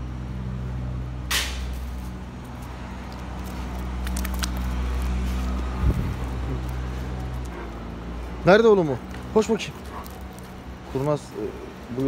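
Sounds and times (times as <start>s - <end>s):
low motor hum: 1.9s - 10.9s.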